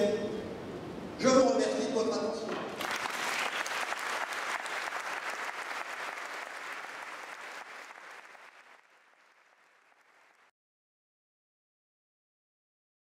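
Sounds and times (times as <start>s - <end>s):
audience applauding: 2.7s - 10.5s.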